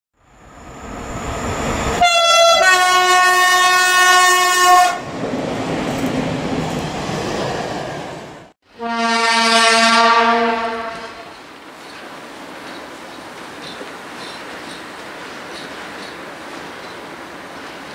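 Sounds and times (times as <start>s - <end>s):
passing train rushing: 0.2s - 17.9s
locomotive horn blast: 2.0s - 5.0s, 8.7s - 11.4s.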